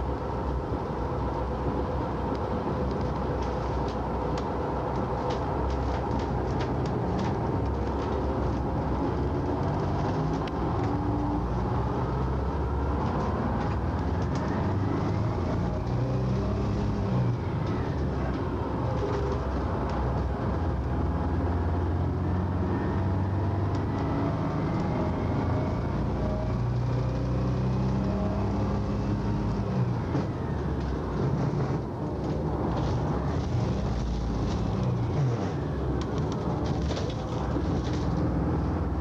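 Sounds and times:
bus engine and road drone: 0.0 - 39.0.

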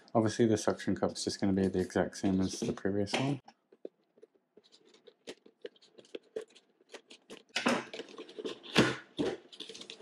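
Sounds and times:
packaging crinkling: 3.5 - 10.0.

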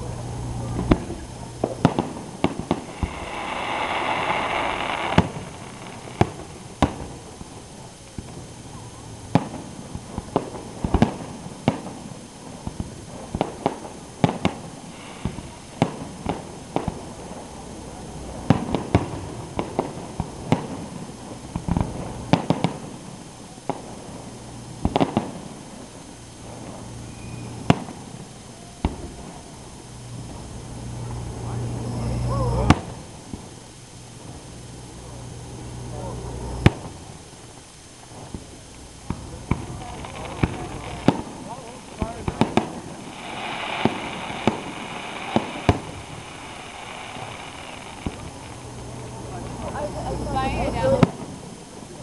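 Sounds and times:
fireworks bangs: 0.0 - 52.0
loud hissing rush: 0.0 - 52.0.

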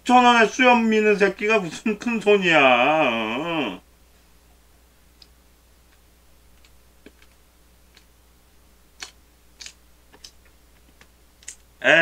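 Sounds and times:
faint sharp clicks: 5.2 - 6.0.

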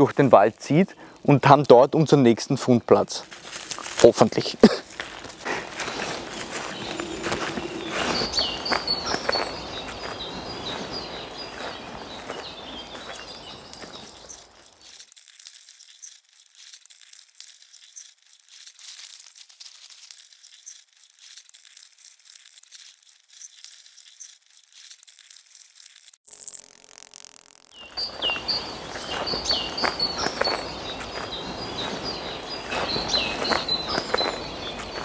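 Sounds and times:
footsteps crunching on leaves: 2.6 - 26.2, 27.7 - 35.0
faint high rustling: 3.0 - 26.2.

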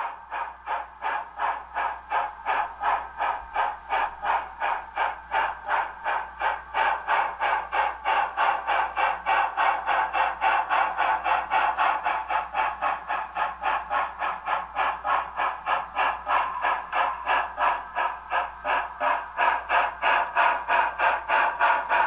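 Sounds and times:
steam locomotive chuffing: 0.0 - 22.0.

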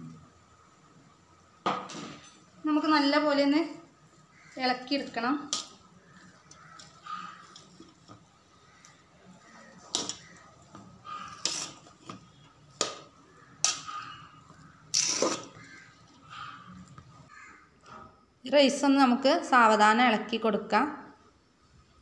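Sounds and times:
spoon stirring rice in pot: 5.4 - 15.8.

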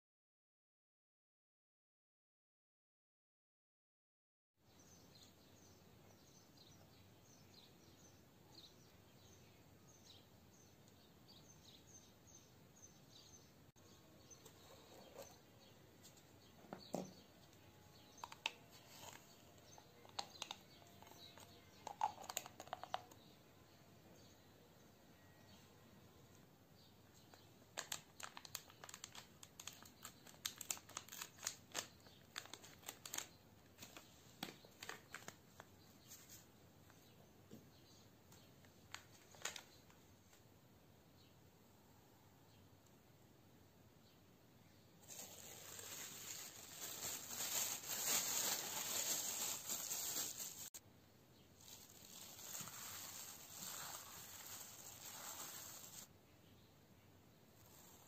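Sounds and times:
packet crinkling and tearing: 27.8 - 34.0, 45.0 - 50.8, 51.6 - 56.1.

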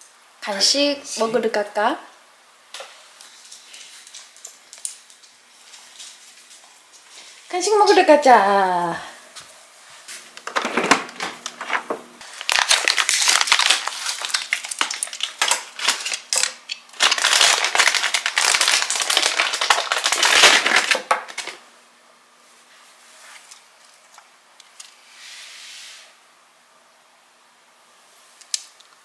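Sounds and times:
plastic packaging crinkling: 2.8 - 7.5, 10.4 - 21.6.

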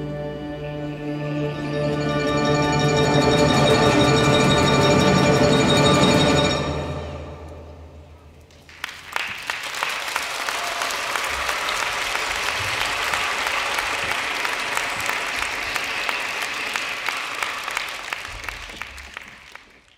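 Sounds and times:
audience applauding: 8.5 - 19.9.

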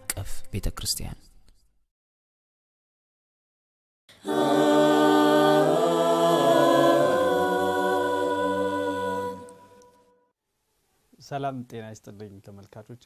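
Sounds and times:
voices singing a cappella: 4.1 - 10.1.

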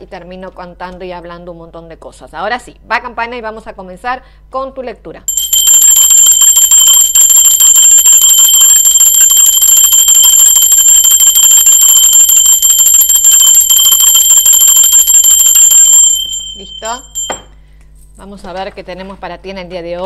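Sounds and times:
brass hand bell ringing rapidly: 5.3 - 17.5.

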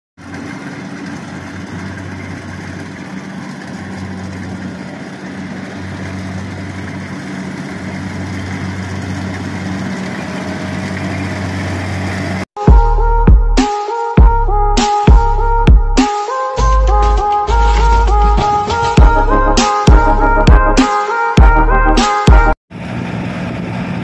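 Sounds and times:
diesel engine running: 0.2 - 13.2, 16.6 - 20.8, 22.7 - 24.0.

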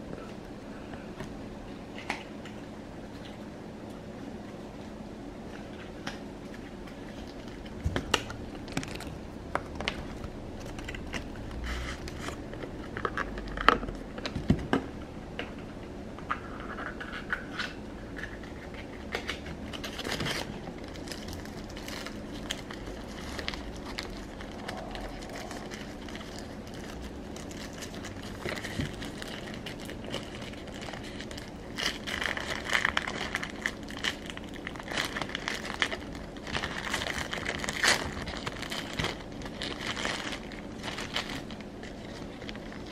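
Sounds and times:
wrapping crinkling and tearing: 5.6 - 14.4, 16.4 - 42.9.

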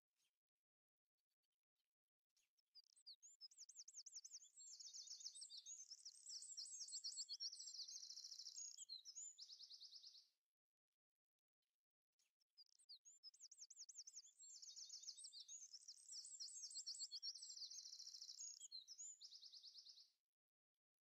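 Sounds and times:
songbird trills and chirps: 2.8 - 10.3, 12.6 - 20.1.

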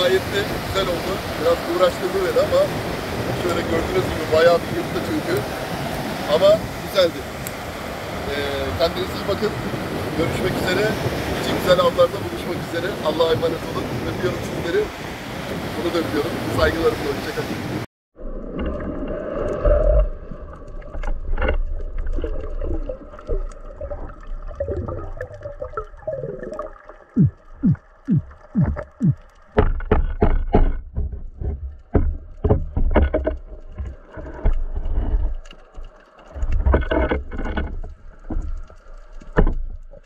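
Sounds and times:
underwater rush of water: 0.0 - 40.0
underwater knocks and clicks: 18.4 - 40.0.

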